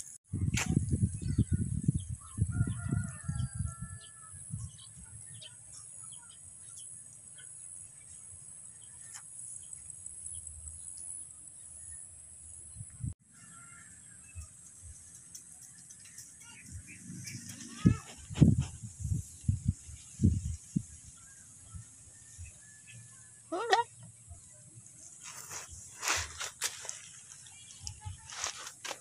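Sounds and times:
wind buffeting microphone: 0.3s - 5.1s, 16.5s - 22.6s.

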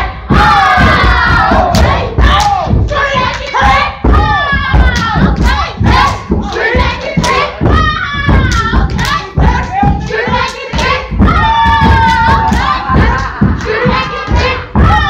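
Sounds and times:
people singing: 0.0s - 15.0s
boots stomping: 3.7s - 15.0s
hands clapping and slapping: 11.8s - 14.4s.

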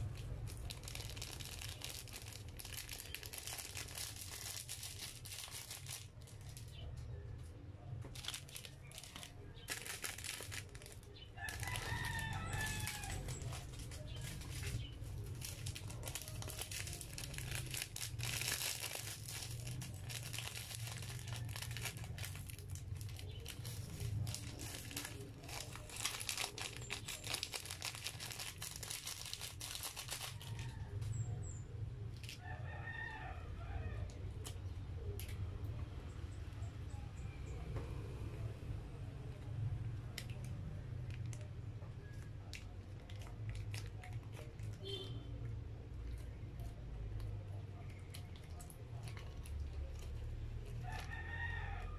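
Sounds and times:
plastic sachets crinkling and tearing: 0.0s - 7.0s, 7.9s - 31.1s, 40.0s - 51.9s
rooster crowing: 11.4s - 13.5s, 32.4s - 34.1s, 50.8s - 51.9s.

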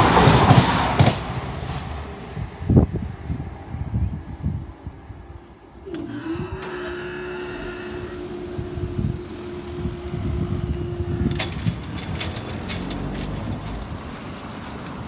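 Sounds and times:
low rumble of road vehicles: 0.0s - 15.0s
barrier motor humming: 5.4s - 15.0s.

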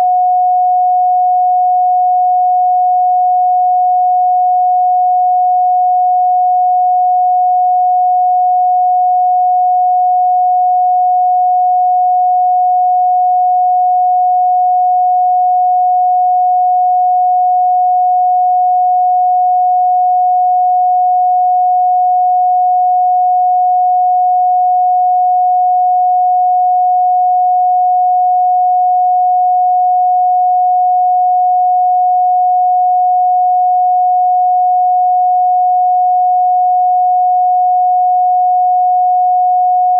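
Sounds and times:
pure sine tone: 0.0s - 39.9s.

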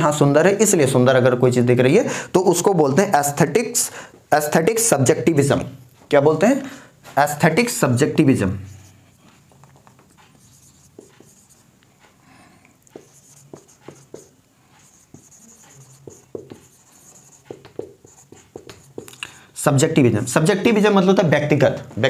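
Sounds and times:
marker pen writing on whiteboard: 7.1s - 19.2s.

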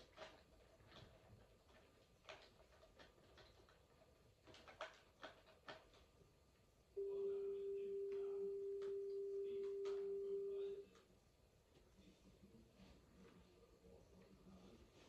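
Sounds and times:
faint tape hiss: 0.0s - 15.0s
steady pure tone: 7.0s - 10.9s.

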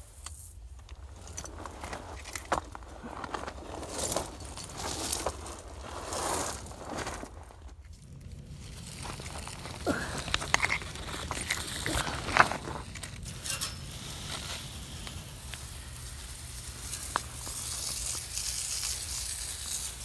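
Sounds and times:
foil insulation crinkling: 0.4s - 20.0s
clicks and scrapes: 7.7s - 15.7s
hiss: 13.2s - 20.0s.

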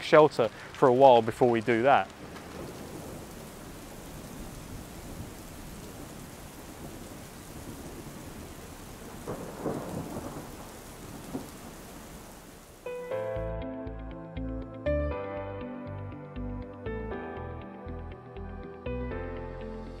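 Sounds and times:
rain falling on river: 0.0s - 13.0s.

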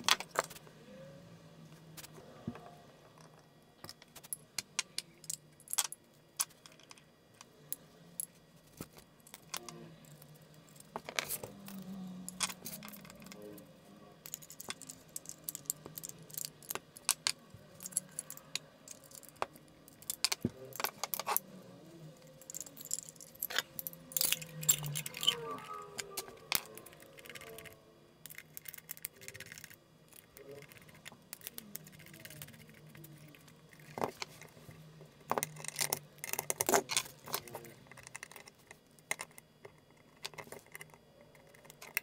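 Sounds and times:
small metal parts clicking and clinking: 7.7s - 13.6s, 14.2s - 21.5s, 22.2s - 34.5s, 35.3s - 42.0s.

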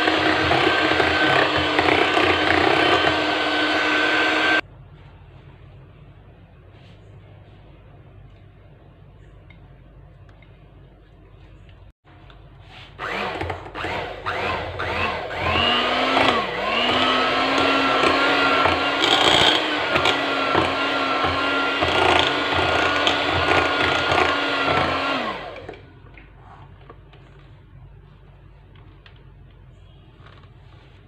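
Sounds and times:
electric hand mixer: 0.0s - 4.6s, 13.0s - 25.9s.

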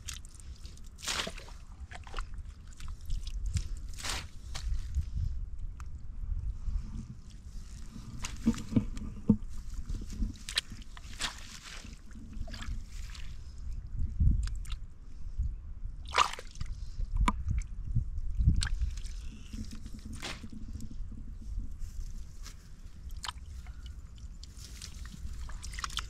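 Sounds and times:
water sloshing and dripping: 0.0s - 4.2s, 7.3s - 13.4s, 23.0s - 26.0s
mud squelching: 0.0s - 5.2s, 7.0s - 13.7s, 16.0s - 16.8s, 18.5s - 26.0s.

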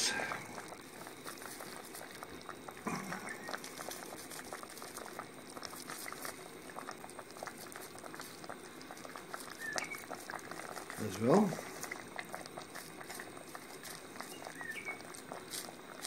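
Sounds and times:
stew bubbling with pops: 0.0s - 16.0s.

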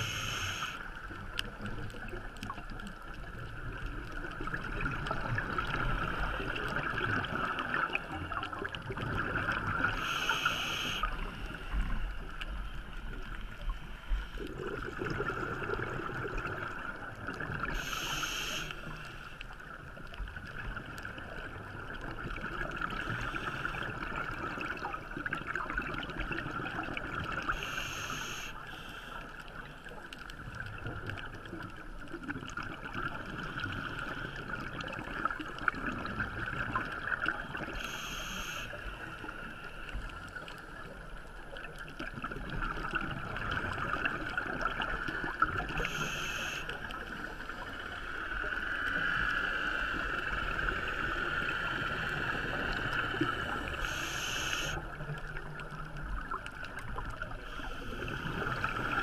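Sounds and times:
regulator hissing inhales: 0.0s - 0.9s, 10.0s - 11.2s, 17.7s - 19.3s, 27.5s - 29.2s, 37.8s - 38.9s, 45.8s - 46.7s, 53.6s - 54.8s.

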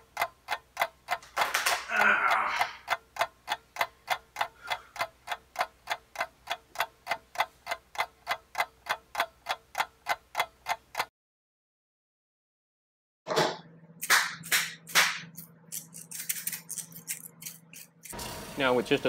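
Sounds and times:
clock ticking fast: 0.0s - 1.3s, 1.9s - 11.1s.

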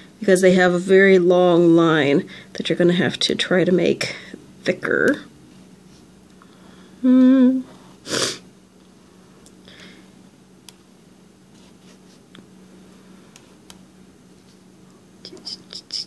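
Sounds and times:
low steady hum: 0.0s - 16.0s
person humming a note: 7.0s - 7.7s
marker scratching on paper: 15.3s - 16.0s.

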